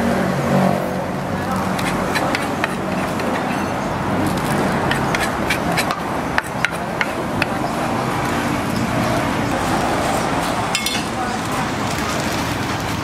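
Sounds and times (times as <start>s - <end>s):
street and traffic noise: 0.0s - 13.0s
spoon scraping wooden mortar: 1.5s - 7.8s.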